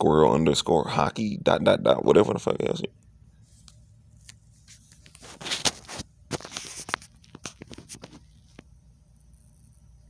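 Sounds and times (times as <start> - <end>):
rustling and scraping: 3.4 - 8.7.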